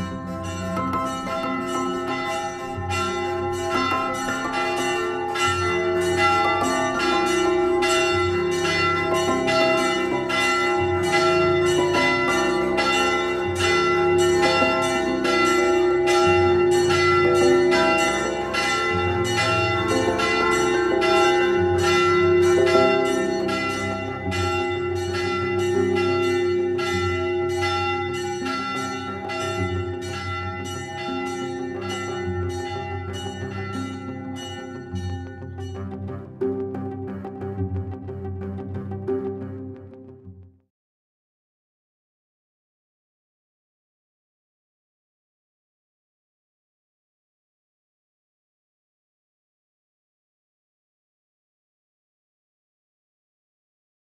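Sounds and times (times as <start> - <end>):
church bells ringing: 0.0 - 37.8.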